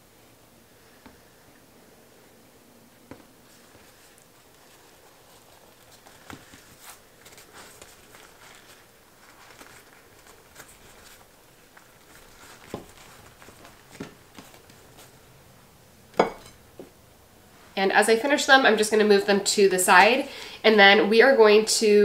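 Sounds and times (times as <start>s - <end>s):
soft rustling of food: 0.7s - 15.8s.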